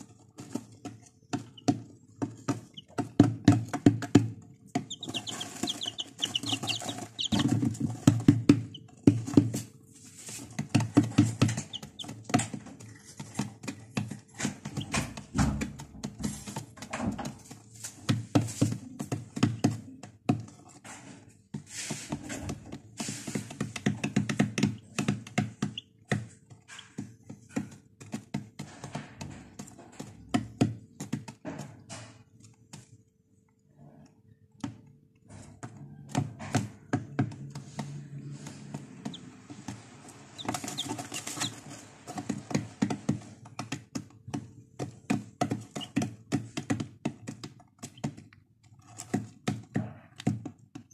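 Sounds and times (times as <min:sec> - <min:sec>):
chicks pecking on plastic tray: 0:00.0 - 0:33.0, 0:34.6 - 0:50.9
chicks peeping: 0:00.4 - 0:13.4, 0:23.3 - 0:27.0, 0:38.3 - 0:43.6, 0:45.4 - 0:46.1.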